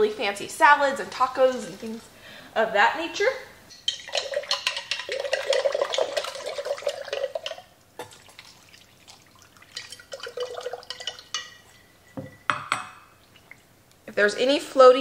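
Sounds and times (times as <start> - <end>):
liquid pouring and splashing: 3.9 - 11.7, 13.2 - 13.7.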